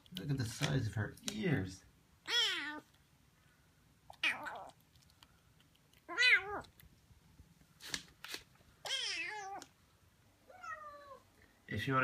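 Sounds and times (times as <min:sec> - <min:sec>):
kitten meowing: 0:02.2 - 0:02.9, 0:04.1 - 0:04.8, 0:06.1 - 0:06.7, 0:08.8 - 0:09.7, 0:10.5 - 0:11.2.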